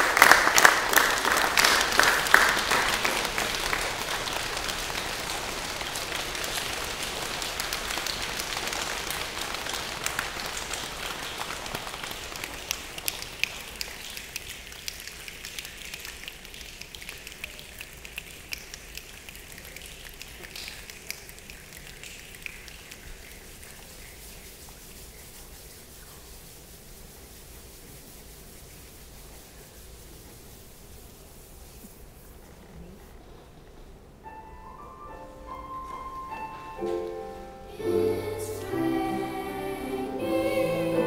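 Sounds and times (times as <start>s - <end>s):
group clapping: 0.0s - 24.4s
soft hiss: 0.0s - 41.0s.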